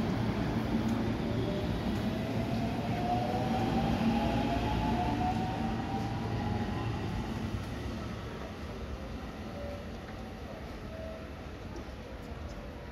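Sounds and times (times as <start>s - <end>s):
wheels rumbling on rail: 0.0s - 12.4s.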